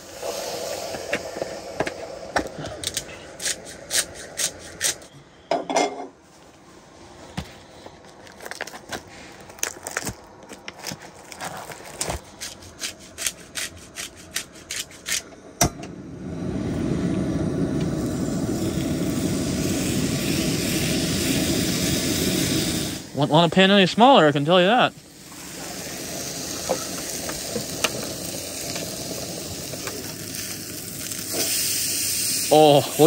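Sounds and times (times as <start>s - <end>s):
gas burner hissing: 0.0s - 6.1s, 11.8s - 33.0s
seasoning shaken onto steak: 25.2s - 33.0s.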